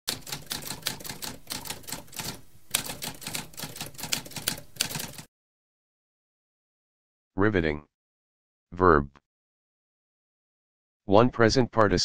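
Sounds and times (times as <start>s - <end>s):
typewriter keys clicking: 0.1s - 5.3s.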